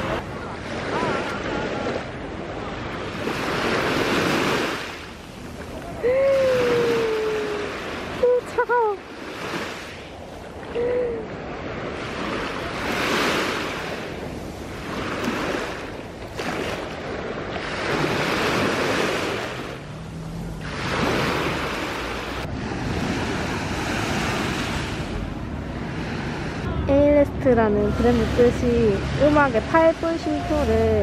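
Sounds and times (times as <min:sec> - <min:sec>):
waves washing over sand: 0:00.0 - 0:26.7
woman squealing: 0:06.0 - 0:07.7.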